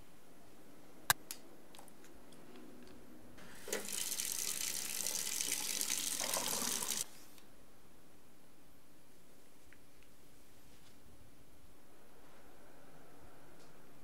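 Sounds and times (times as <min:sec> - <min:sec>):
tap running into metal sink: 0:03.6 - 0:04.1.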